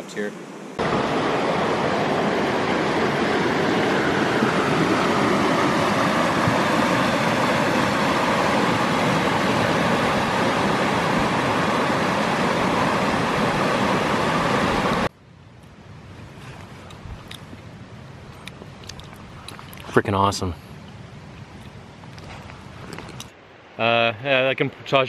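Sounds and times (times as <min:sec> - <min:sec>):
river rapids rushing: 0:00.8 - 0:15.1.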